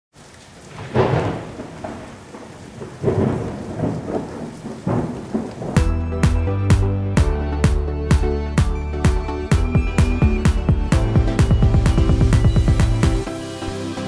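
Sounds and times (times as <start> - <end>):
steady rain: 0.1 - 14.0
thunder rumbling: 0.6 - 7.8
electronic dance music: 5.8 - 14.0.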